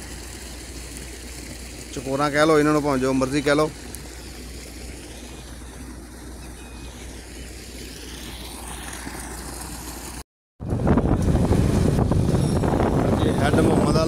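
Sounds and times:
low engine hum: 0:00.0 - 0:14.0
road and wind noise: 0:03.4 - 0:14.0.

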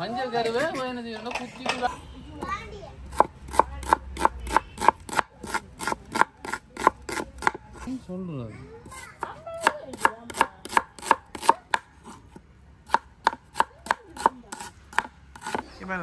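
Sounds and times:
knife chopping on wooden board: 0:03.1 - 0:07.9, 0:09.2 - 0:15.7.

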